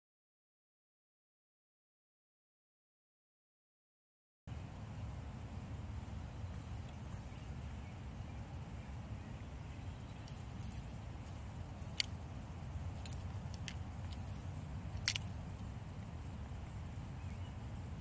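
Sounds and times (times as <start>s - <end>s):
low background rumble: 4.5s - 18.0s
light rustling: 6.2s - 7.9s, 9.6s - 17.5s.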